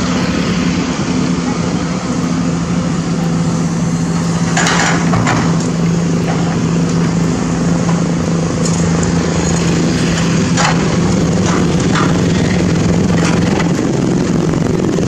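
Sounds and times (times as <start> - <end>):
excavator diesel engine under load: 0.0 - 15.0.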